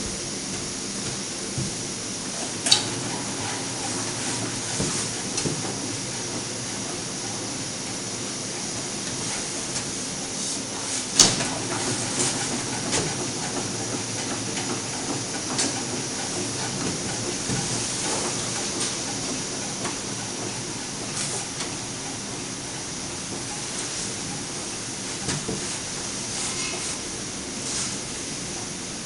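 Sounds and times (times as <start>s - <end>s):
gas burners hissing: 0.0s - 29.0s.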